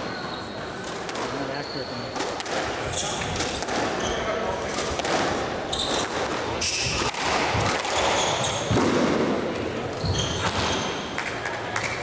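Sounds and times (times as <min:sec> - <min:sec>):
squash ball smacking: 0:00.8 - 0:01.4, 0:02.1 - 0:04.0, 0:04.7 - 0:09.7
sneakers squeaking on hardwood: 0:02.8 - 0:04.4, 0:05.6 - 0:08.8, 0:09.9 - 0:11.2.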